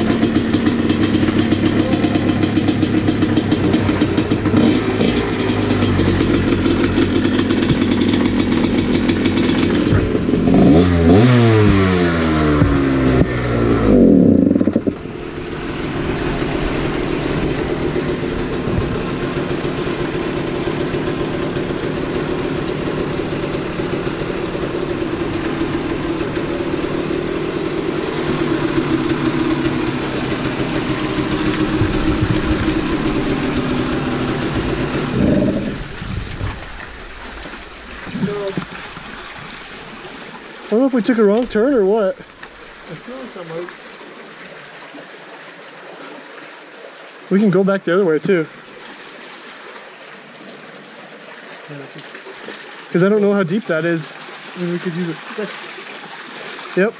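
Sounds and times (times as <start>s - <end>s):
dirt bike engine idling and revving: 0.0s - 44.2s.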